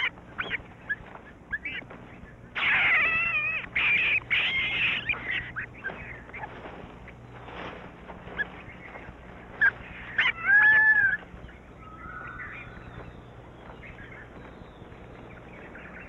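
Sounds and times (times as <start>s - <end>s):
loud arching animal call: 0.0s - 1.9s, 2.5s - 6.6s, 9.6s - 14.4s
animal cries: 0.0s - 6.7s, 8.3s - 14.4s
faint flat animal call: 0.0s - 16.0s.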